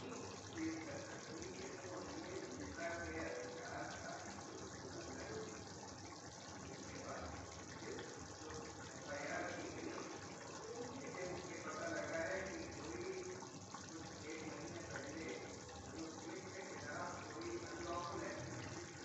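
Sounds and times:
gravy bubbling: 0.0s - 19.0s.

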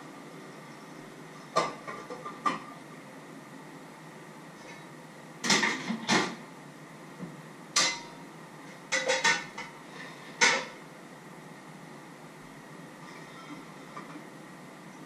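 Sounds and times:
pots and dishes clattering: 1.4s - 2.8s, 4.6s - 6.4s, 7.8s - 10.8s.

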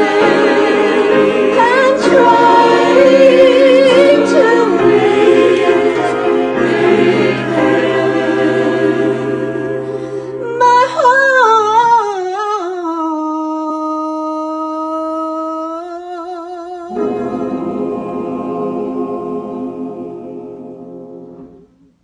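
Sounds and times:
choir humming: 0.0s - 10.6s, 16.9s - 22.0s
woman singing: 10.5s - 17.0s.

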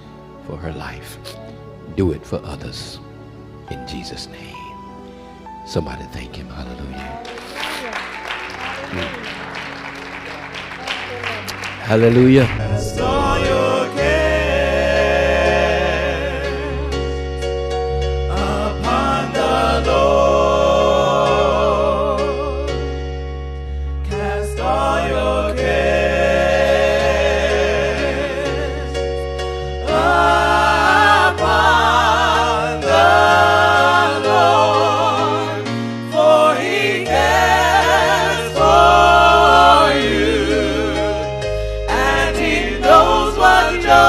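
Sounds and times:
voices singing gospel: 11.5s - 17.5s, 18.2s - 23.0s, 24.0s - 44.0s
steady bass: 11.8s - 14.6s.

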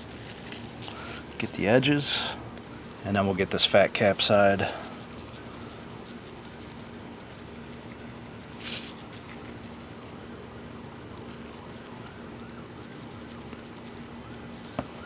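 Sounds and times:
faint steady hum: 0.0s - 15.0s
spice shaker spraying granules: 4.0s - 9.9s.

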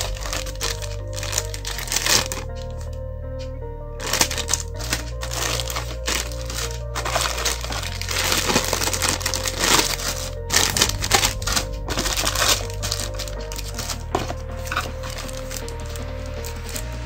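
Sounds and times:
plastic bags crinkling: 0.0s - 3.0s, 4.0s - 17.0s
background music with bass notes: 0.0s - 17.0s.

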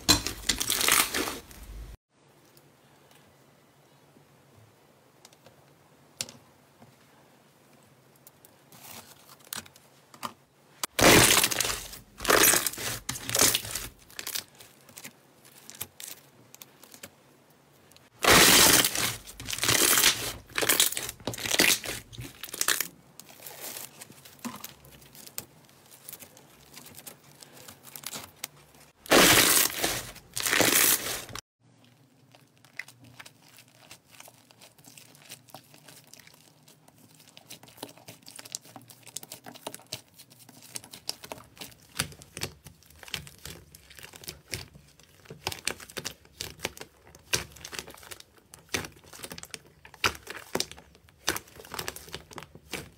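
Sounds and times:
slime crackling and popping: 10.9s - 17.1s, 18.2s - 28.5s, 29.1s - 52.9s.

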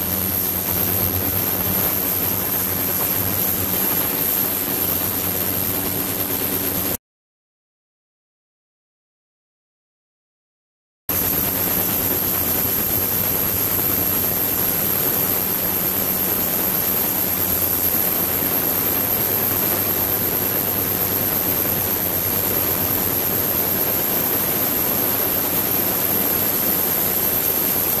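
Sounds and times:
high-pitched whine: 0.0s - 7.0s.

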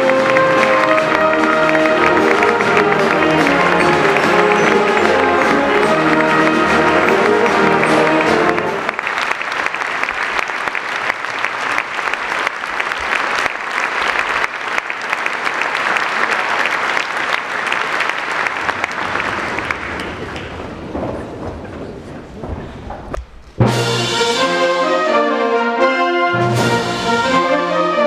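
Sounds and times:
brass band chord: 0.0s - 9.0s, 23.6s - 28.0s
audience applause: 0.0s - 23.2s.

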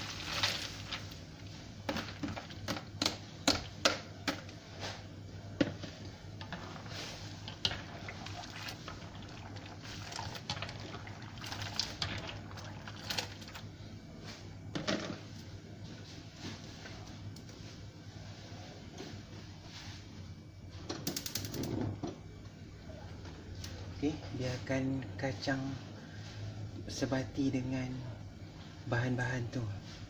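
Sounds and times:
liquid sloshing: 6.4s - 13.6s
peanuts poured into liquid: 6.5s - 13.6s.

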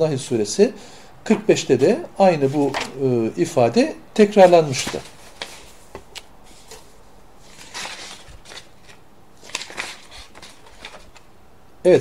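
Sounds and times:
soft rustling: 4.4s - 11.3s.

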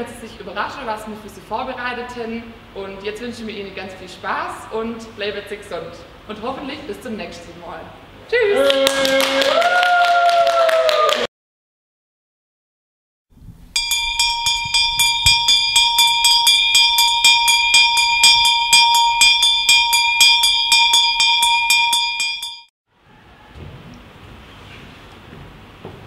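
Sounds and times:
bell ringing rapidly: 13.8s - 22.7s.

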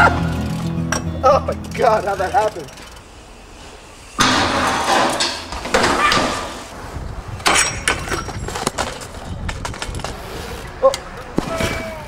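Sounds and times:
bike crashing on concrete: 1.8s - 6.8s, 7.4s - 10.7s
sharp knocks and clanks: 4.2s - 6.6s.

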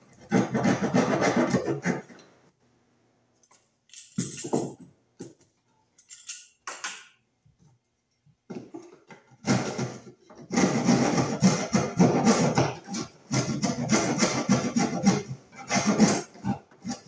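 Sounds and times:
metal blade scraping wood: 9.4s - 17.0s.

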